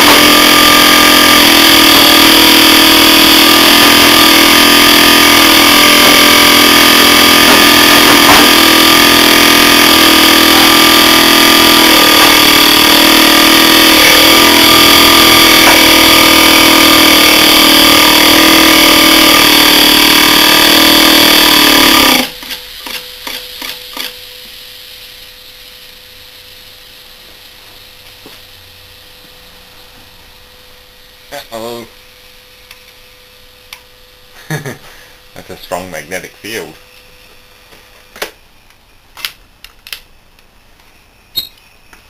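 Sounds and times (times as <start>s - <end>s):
compressor running loudly: 0.0s - 42.0s.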